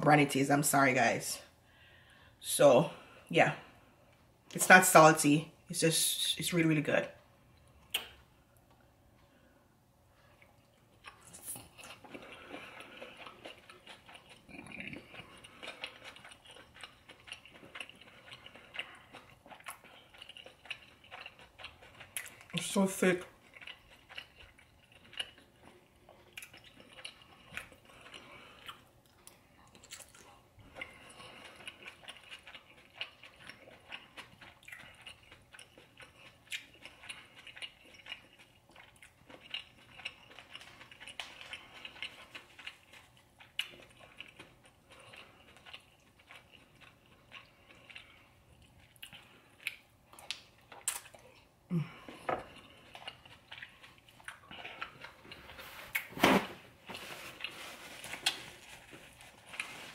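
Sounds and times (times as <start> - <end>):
close chewing mouth sounds: 10.1 - 56.1.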